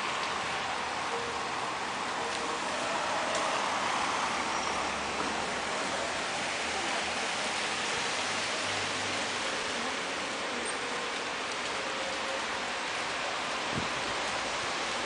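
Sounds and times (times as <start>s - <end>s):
rain on wet street: 0.0s - 15.0s.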